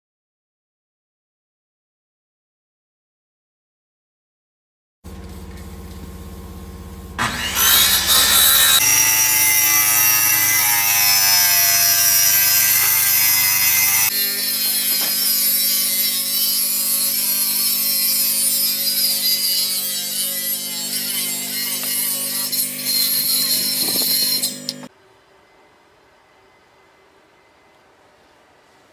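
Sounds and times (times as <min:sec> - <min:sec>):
angle grinder cutting steel: 0:07.2 - 0:24.9.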